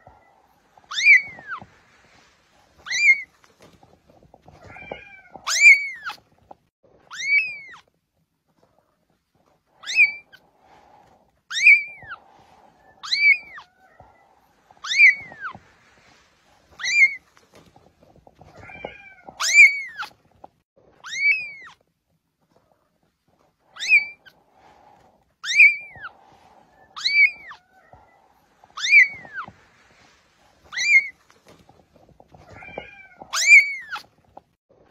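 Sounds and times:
kitten mewing: 4.5s - 6.2s, 18.4s - 20.2s, 32.3s - 34.1s.

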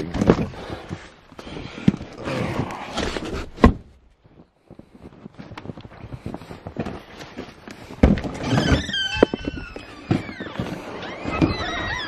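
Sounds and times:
footsteps crunching in snow: 4.1s - 8.0s.

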